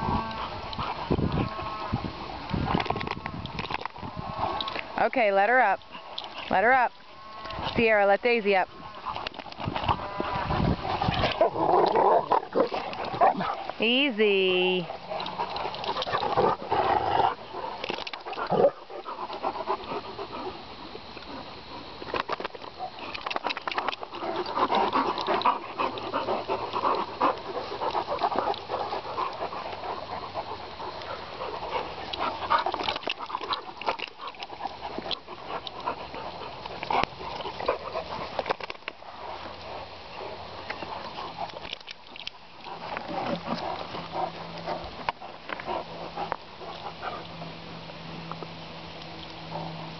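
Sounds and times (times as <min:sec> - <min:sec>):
dogs panting hard: 0:00.0 - 0:03.0, 0:08.7 - 0:14.1, 0:14.8 - 0:48.3, 0:49.4 - 0:49.9
dogs scuffling: 0:07.4 - 0:20.5.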